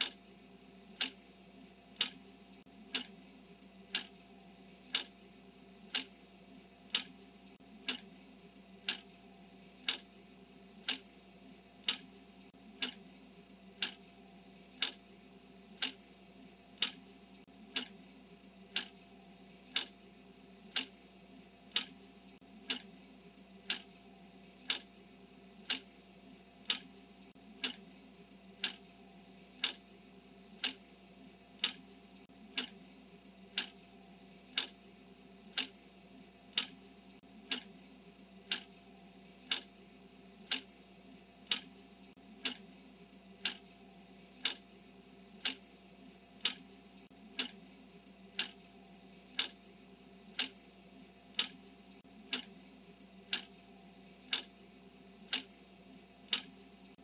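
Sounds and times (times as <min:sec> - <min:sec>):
clock ticking: 0:00.0 - 0:00.2, 0:00.9 - 0:03.2, 0:03.8 - 0:04.3, 0:04.9 - 0:05.2, 0:05.8 - 0:06.2, 0:06.8 - 0:08.2, 0:08.8 - 0:10.2, 0:10.8 - 0:13.1, 0:13.7 - 0:14.0, 0:14.7 - 0:15.0, 0:15.7 - 0:16.1, 0:16.7 - 0:18.0, 0:18.7 - 0:19.0, 0:19.6 - 0:20.0, 0:20.7 - 0:21.1, 0:21.7 - 0:23.0, 0:23.6 - 0:24.0, 0:24.6 - 0:25.0, 0:25.6 - 0:26.0, 0:26.6 - 0:27.9, 0:28.5 - 0:29.8, 0:30.5 - 0:32.9, 0:33.5 - 0:34.8, 0:35.5 - 0:35.9, 0:36.5 - 0:37.8, 0:38.4 - 0:38.8, 0:39.4 - 0:39.7, 0:40.4 - 0:40.8, 0:41.4 - 0:42.7, 0:43.4 - 0:43.7, 0:44.3 - 0:44.7, 0:45.3 - 0:45.8, 0:46.4 - 0:47.6, 0:48.3 - 0:49.6, 0:50.3 - 0:50.6, 0:51.3 - 0:52.6, 0:53.2 - 0:53.6, 0:54.2 - 0:54.6, 0:55.2 - 0:57.0
faint steady hum: 0:00.0 - 0:57.0.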